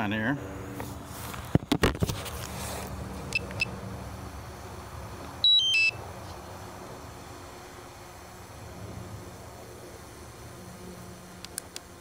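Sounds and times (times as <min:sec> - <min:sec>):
short electronic beeps: 0:05.4 - 0:06.0.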